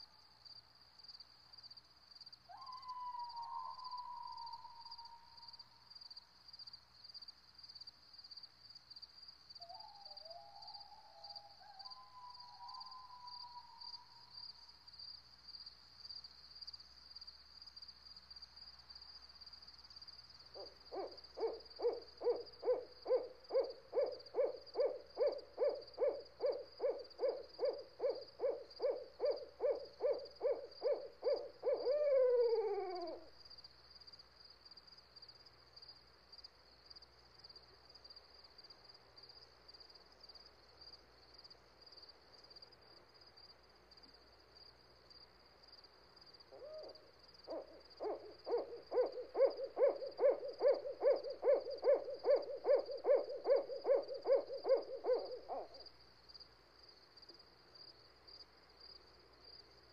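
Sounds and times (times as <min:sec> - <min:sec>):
low hoots: 0:02.5 - 0:05.5, 0:09.6 - 0:14.3, 0:20.6 - 0:33.4, 0:46.5 - 0:55.9.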